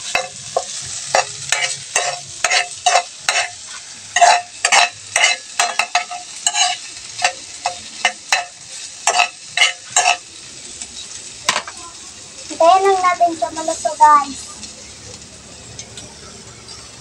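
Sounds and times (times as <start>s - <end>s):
metal spoon scraping a wok: 0.0s - 10.3s, 15.5s - 17.0s
faint frying sizzle: 0.0s - 17.0s.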